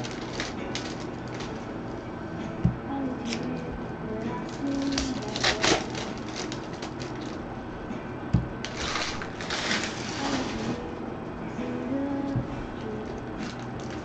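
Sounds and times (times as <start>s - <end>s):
card packs crinkling: 0.0s - 1.7s, 4.4s - 7.4s, 8.7s - 10.8s, 13.4s - 14.0s
soft background music: 0.0s - 14.0s.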